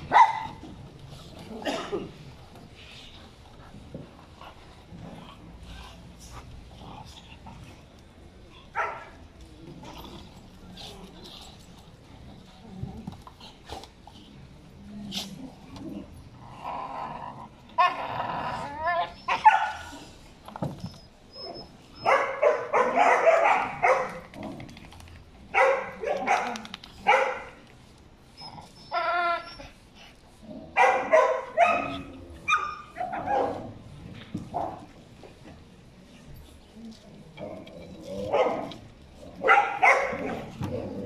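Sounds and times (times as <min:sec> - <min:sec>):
dogs barking: 0:00.1 - 0:00.6, 0:08.8 - 0:09.2, 0:19.3 - 0:19.9, 0:22.0 - 0:24.3, 0:25.5 - 0:27.6, 0:30.8 - 0:33.7, 0:39.4 - 0:40.5.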